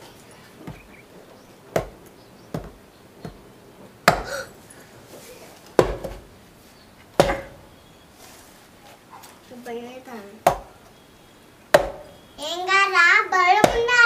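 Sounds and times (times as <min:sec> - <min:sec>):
knife chopping coconut husk: 0:01.7 - 0:03.4, 0:04.0 - 0:04.5, 0:05.7 - 0:06.3, 0:07.1 - 0:07.7, 0:10.4 - 0:10.8, 0:11.7 - 0:12.2, 0:13.6 - 0:14.0.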